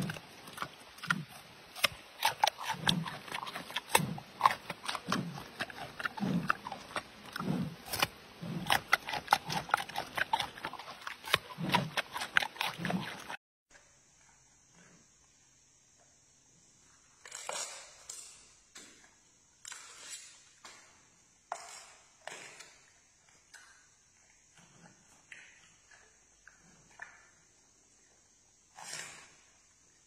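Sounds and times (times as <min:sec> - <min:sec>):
panda crunching a carrot: 0:00.0 - 0:13.4.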